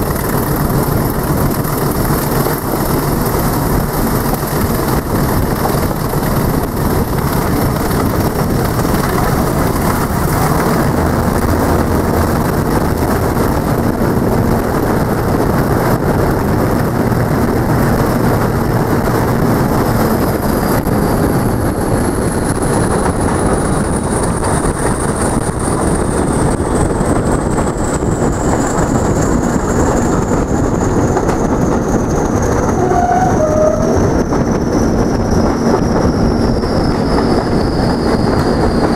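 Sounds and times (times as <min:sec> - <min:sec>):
train running through tunnel: 0:00.0 - 0:38.9
thin high whistle falling: 0:32.8 - 0:34.2.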